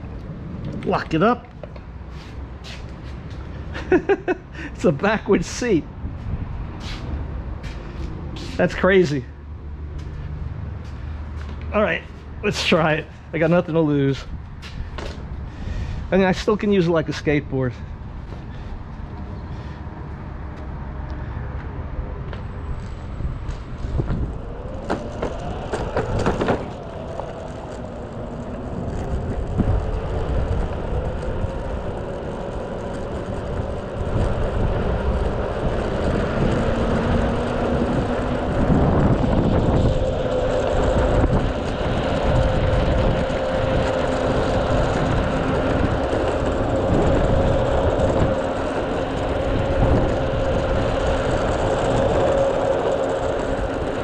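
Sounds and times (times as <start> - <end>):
wheels rumbling on rough asphalt: 0.0 - 54.0
electric skateboard motor whining: 22.8 - 54.0.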